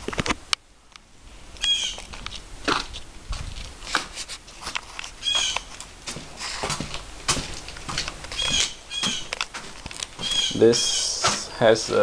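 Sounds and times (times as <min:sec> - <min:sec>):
rustling: 0:01.3 - 0:12.0
short high-pitched animal calls: 0:01.6 - 0:02.0, 0:05.2 - 0:05.7, 0:10.2 - 0:11.2.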